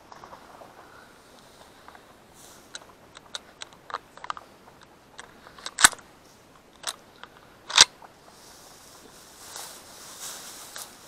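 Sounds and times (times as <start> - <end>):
gear clicks and knocks: 2.7 - 6.0
footsteps through dry grass: 8.3 - 11.0.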